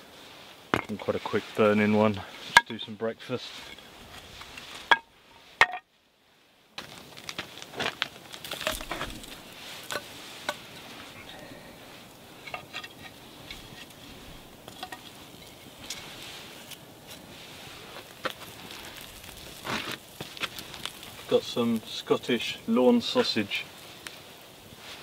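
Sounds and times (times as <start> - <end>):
embers crackling: 0.0 - 25.0
firewood knocked onto embers: 0.7 - 1.1, 6.8 - 10.6.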